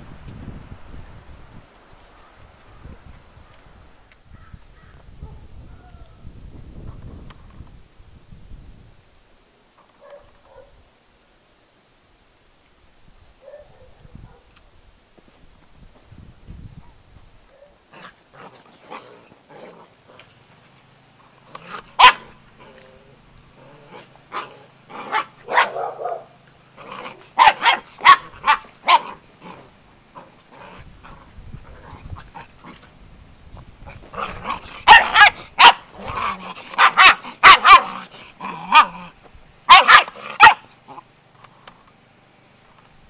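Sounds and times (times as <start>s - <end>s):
puppies barking and growling: 17.9s - 20.3s, 21.3s - 32.9s, 33.8s - 41.1s.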